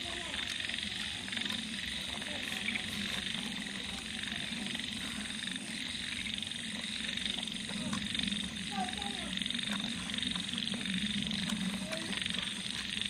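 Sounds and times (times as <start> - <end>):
frogs croaking: 0.0 - 13.0
rapid frog trill: 0.0 - 13.0.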